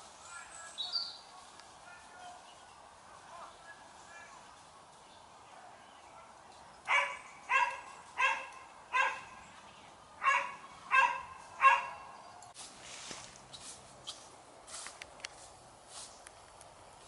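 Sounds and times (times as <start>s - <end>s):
dog barking: 6.9s - 9.4s, 10.2s - 12.2s.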